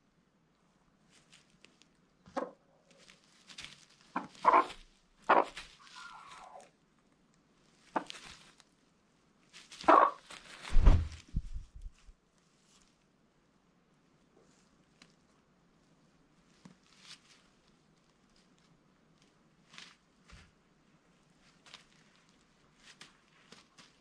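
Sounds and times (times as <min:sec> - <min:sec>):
hens clucking and squawking: 0:04.2 - 0:06.7, 0:09.8 - 0:10.3
low thumps: 0:10.7 - 0:12.0.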